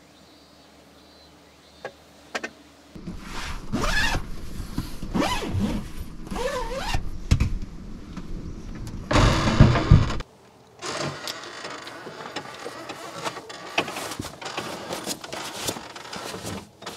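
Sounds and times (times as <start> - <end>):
zipper being pulled: 3.2 - 7.0.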